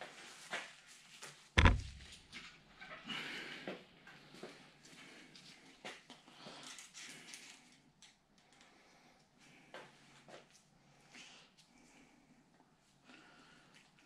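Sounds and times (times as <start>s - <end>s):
heavy knock: 1.6s - 2.0s.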